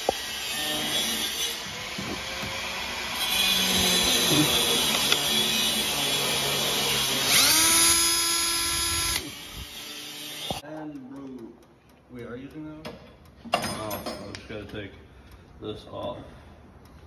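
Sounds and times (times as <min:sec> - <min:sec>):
drill grinding through steel: 0:00.0 - 0:10.6.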